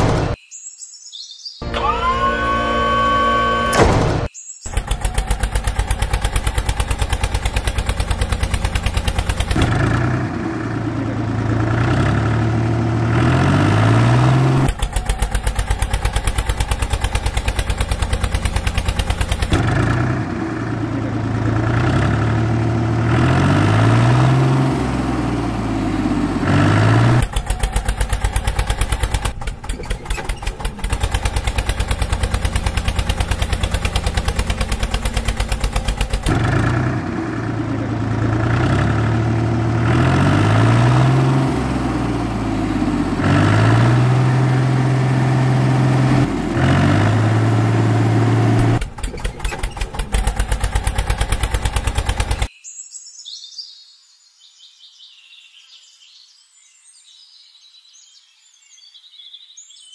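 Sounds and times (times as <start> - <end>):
tractor engine chugging: 4.7 - 52.5.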